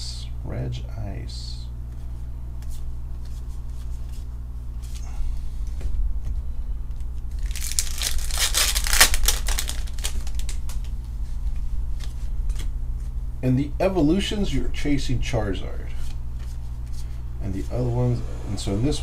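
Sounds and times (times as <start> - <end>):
steady low hum: 0.0 - 19.0
foil pack tearing and crinkling: 7.3 - 10.9.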